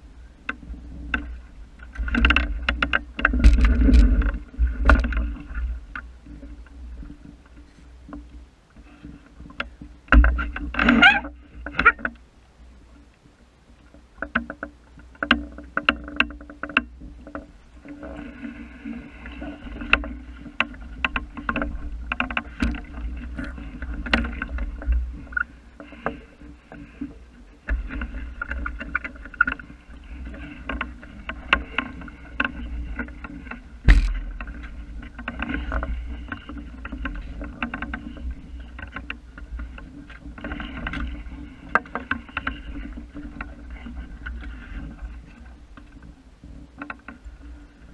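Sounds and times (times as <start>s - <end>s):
sharp knocks and clicks from boat: 0.0s - 47.9s
water splashing along boat hull: 0.0s - 47.9s
steady low rumble: 26.9s - 36.5s.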